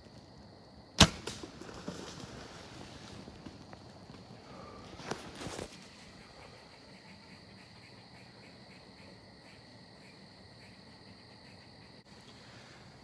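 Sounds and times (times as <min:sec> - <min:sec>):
crickets and insects chirping: 0:00.0 - 0:13.0
handling rustle: 0:01.6 - 0:06.0.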